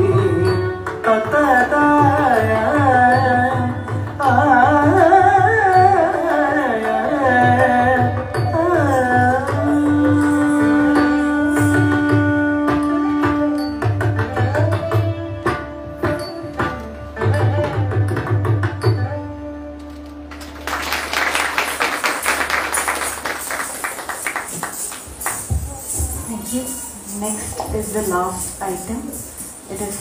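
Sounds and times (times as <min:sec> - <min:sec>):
audience applause: 0:20.3 - 0:25.5
hand drum strokes: 0:23.2 - 0:30.0.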